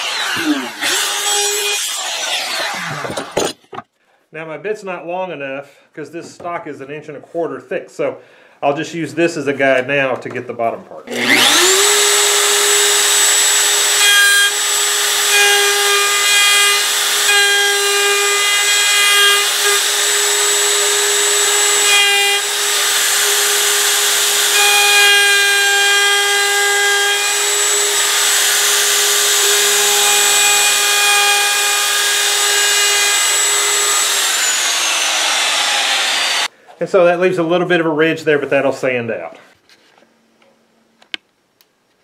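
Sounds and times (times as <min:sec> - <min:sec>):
router bit cutting wood: 0:00.0 - 0:03.8, 0:11.1 - 0:36.5
router whining: 0:00.0 - 0:03.8, 0:11.1 - 0:36.5.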